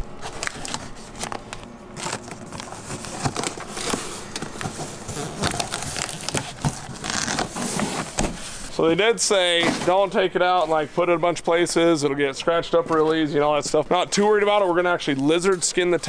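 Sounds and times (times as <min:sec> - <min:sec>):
cardboard crackling and scraping: 0:00.2 - 0:10.8.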